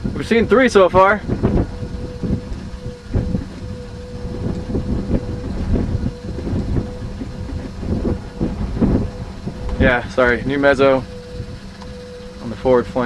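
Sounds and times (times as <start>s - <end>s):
thin steady hum: 0.0s - 13.0s
wind buffeting microphone: 0.0s - 13.0s.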